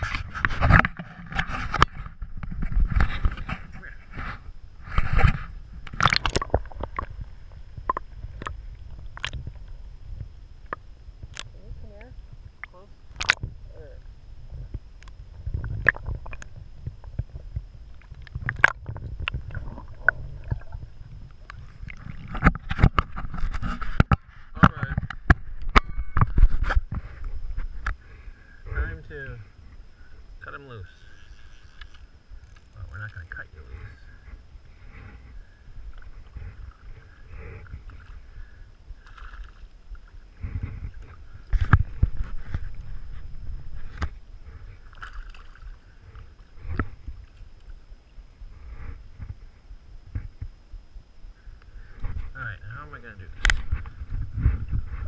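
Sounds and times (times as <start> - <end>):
muffled underwater rumble: 0.0 - 55.0
water splashing and sloshing: 4.8 - 10.0, 15.4 - 24.5, 35.9 - 47.8.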